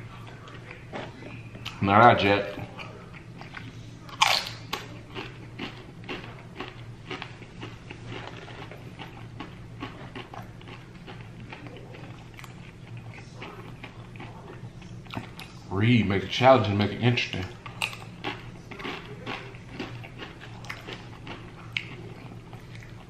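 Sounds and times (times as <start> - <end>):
crunching chips: 3.2 - 15.4, 17.3 - 23.0.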